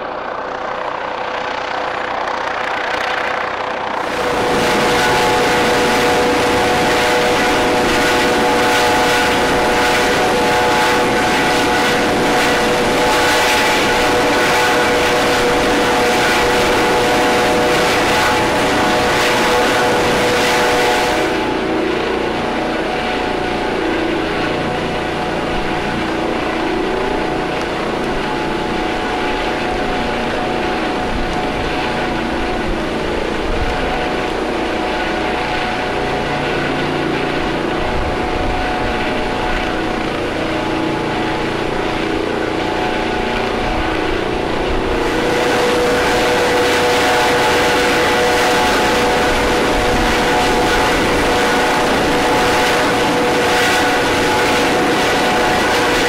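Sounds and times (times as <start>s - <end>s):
helicopter turbine and rotor: 0.0s - 56.0s.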